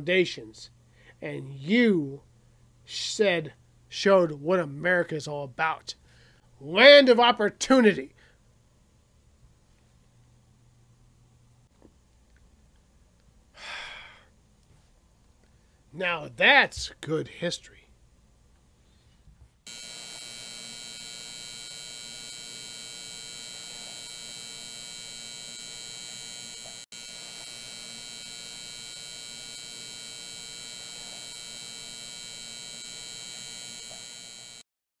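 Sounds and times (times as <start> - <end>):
buzzy electronic hum: 19.7 - 34.6.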